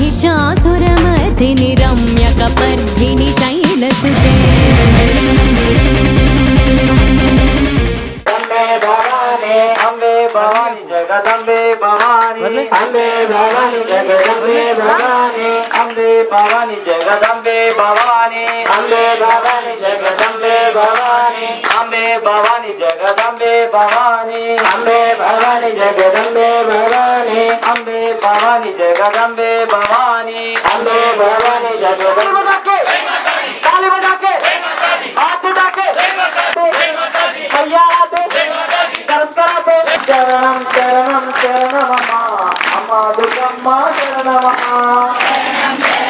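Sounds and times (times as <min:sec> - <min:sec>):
steady drone note: 0:04.1 - 0:08.2
hand claps: 0:08.2 - 0:46.0
men chanting through microphones: 0:08.3 - 0:46.0.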